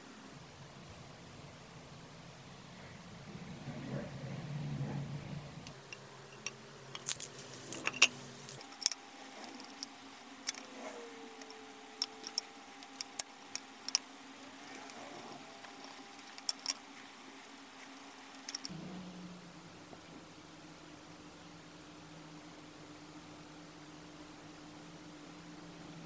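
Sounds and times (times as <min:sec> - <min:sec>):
faint steady hum: 0:00.0 - 0:26.0
small metal objects clinking: 0:05.9 - 0:14.0, 0:15.6 - 0:16.8, 0:18.2 - 0:18.7.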